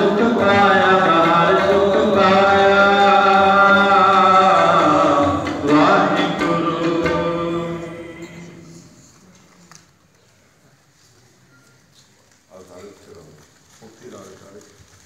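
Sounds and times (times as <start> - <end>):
man singing long notes: 0.0 - 8.9.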